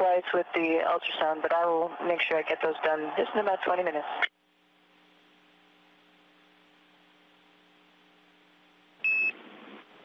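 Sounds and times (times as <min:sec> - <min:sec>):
faint electrical hum with hiss: 0:02.8 - 0:10.0.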